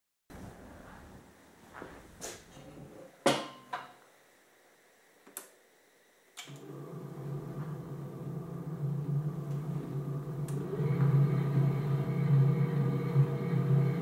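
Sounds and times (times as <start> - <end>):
mixer motor humming: 6.4 - 14.0.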